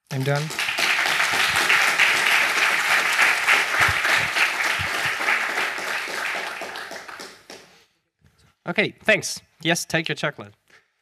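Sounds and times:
audience applauding: 0.1 - 7.8.

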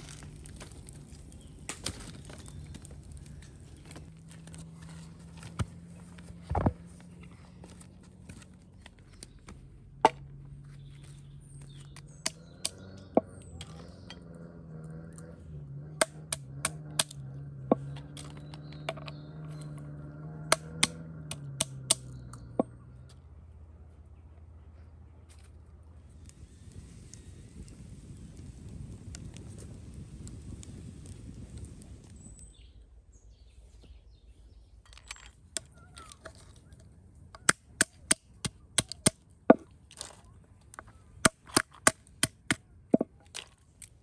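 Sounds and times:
walnuts cracking on wooden board: 0.0 - 4.8, 11.0 - 14.3, 15.0 - 22.8, 34.9 - 44.0
dry sticks knocking and snapping: 0.0 - 5.9, 7.6 - 14.4, 15.0 - 23.2, 34.8 - 44.0.

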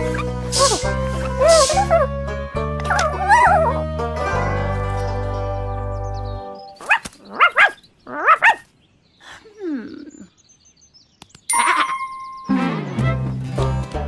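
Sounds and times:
cartoon puppy yapping: 0.0 - 2.1, 2.8 - 3.8, 6.8 - 8.7
bright musical tone: 11.5 - 13.3.

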